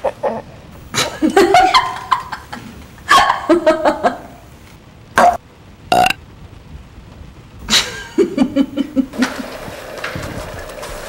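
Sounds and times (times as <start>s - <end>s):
person laughing: 0.0s - 4.4s, 7.7s - 9.4s.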